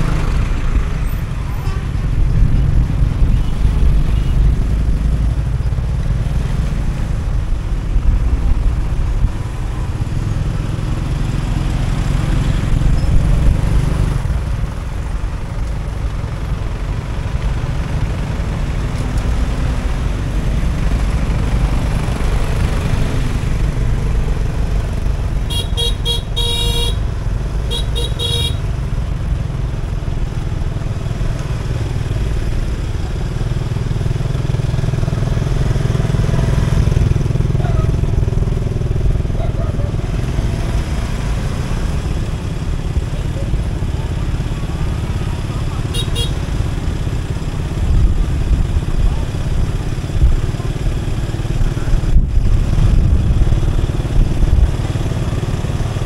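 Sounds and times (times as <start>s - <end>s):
motorbike and traffic rumble: 0.0s - 56.0s
vehicle horn toots: 25.5s - 27.0s, 27.7s - 28.6s, 45.9s - 46.4s.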